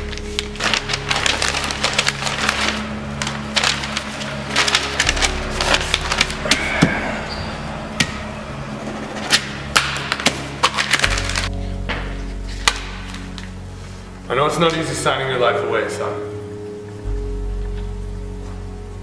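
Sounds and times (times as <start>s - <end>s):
paper crinkling and flipping: 0.0s - 8.1s, 9.2s - 14.9s
low sustained music score: 0.0s - 19.0s.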